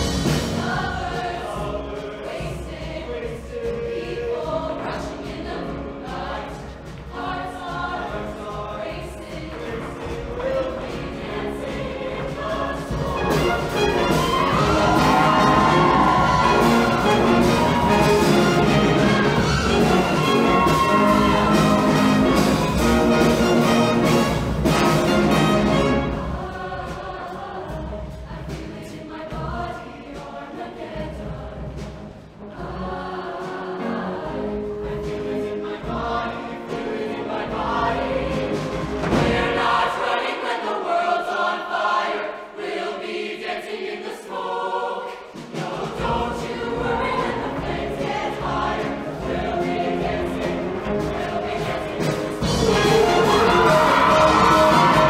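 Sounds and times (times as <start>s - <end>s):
choir singing: 0.0s - 55.0s
live band playing: 13.0s - 26.4s, 49.3s - 55.0s.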